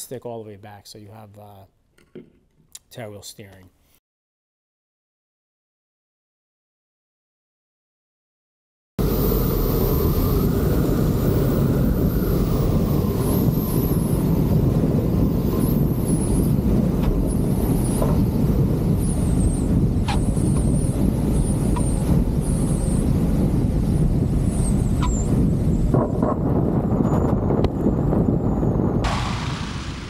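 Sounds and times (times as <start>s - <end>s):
light aircraft engine rumble: 9.0s - 30.0s
wind rush on microphone: 9.0s - 30.0s.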